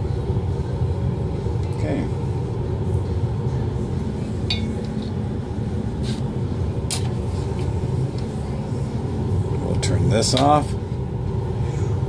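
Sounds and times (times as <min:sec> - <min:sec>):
fume hood exhaust rushing: 0:00.0 - 0:12.0.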